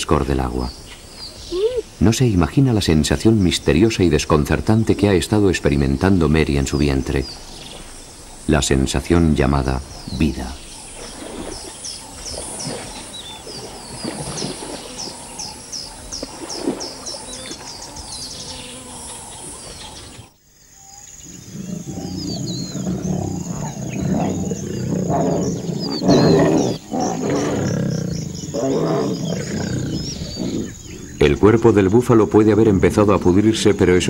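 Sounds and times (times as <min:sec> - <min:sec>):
bird chirping: 0:00.0 - 0:34.0
lions growling: 0:21.2 - 0:31.4.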